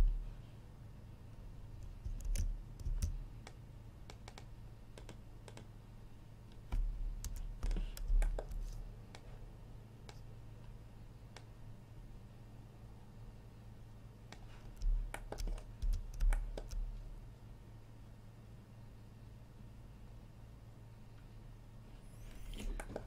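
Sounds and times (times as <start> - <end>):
computer keyboard keystrokes: 1.8 - 5.7, 6.7 - 9.2, 14.3 - 16.9.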